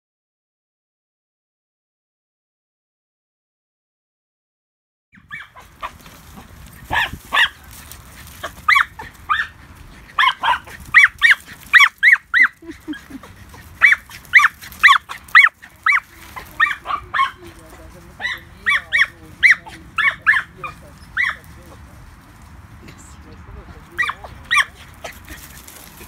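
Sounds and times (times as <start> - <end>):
dog barking: 5.2 - 6.0, 6.9 - 7.7, 8.7 - 9.6, 10.2 - 13.0, 13.8 - 17.5, 18.2 - 21.4, 24.0 - 24.8.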